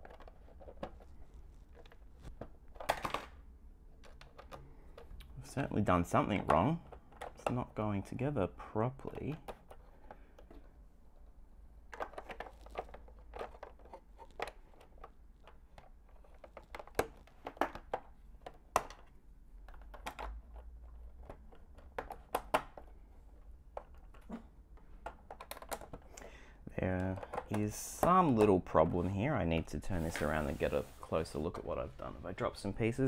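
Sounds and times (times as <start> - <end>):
plastic bricks clicking and snapping: 11.9 - 22.9, 23.7 - 26.2.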